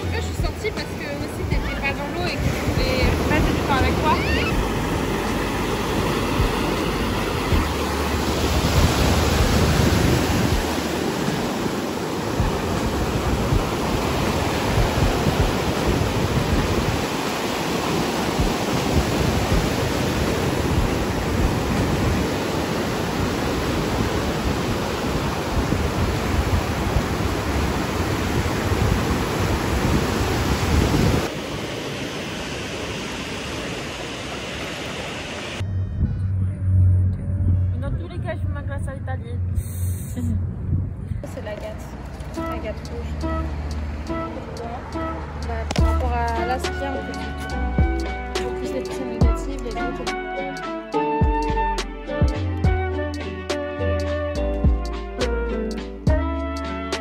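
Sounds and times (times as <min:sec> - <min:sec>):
waves breaking: 0:00.0 - 0:35.6, 0:41.2 - 0:51.2
wind rumbling on microphone: 0:00.0 - 0:44.3.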